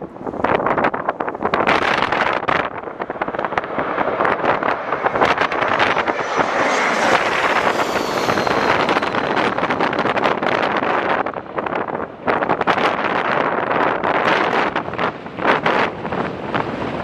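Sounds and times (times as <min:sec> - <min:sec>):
wind buffeting microphone: 0:00.0 - 0:17.0
jet aircraft passing overhead: 0:01.3 - 0:12.7.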